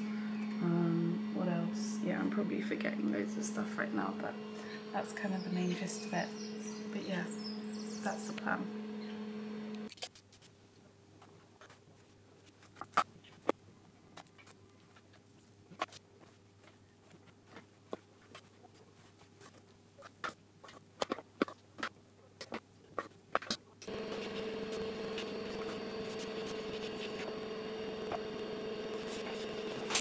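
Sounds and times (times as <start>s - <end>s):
faint steady hum: 0.0s - 9.9s, 10.6s - 30.0s.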